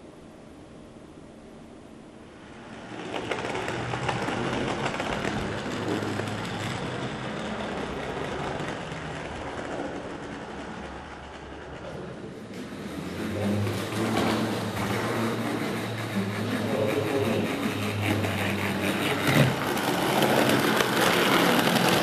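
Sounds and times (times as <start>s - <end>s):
model tram wheels clattering on rails: 2.5s - 22.0s
low electric motor hum: 11.0s - 22.0s.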